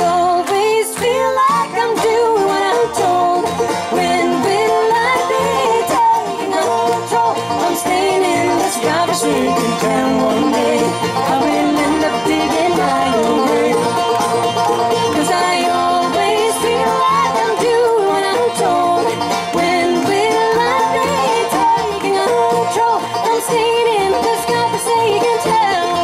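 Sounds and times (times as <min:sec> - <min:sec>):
bluegrass band playing: 0:00.0 - 0:26.0.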